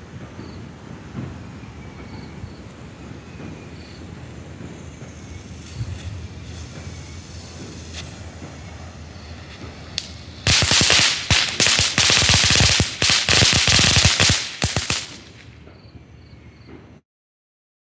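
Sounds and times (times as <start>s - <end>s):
firework fountain rushing: 3.7s - 15.6s
firework crackling: 5.2s - 15.6s.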